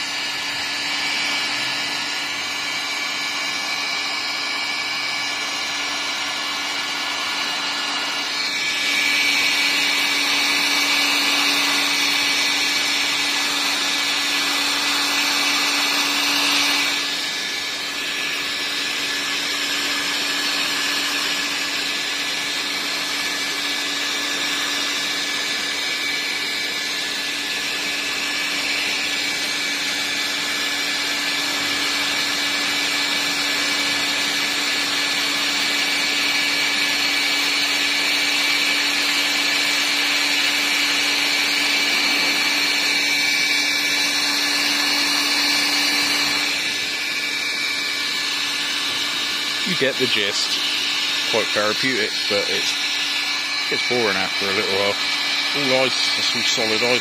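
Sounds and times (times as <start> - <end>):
heat gun blowing air: 0.0 - 57.0.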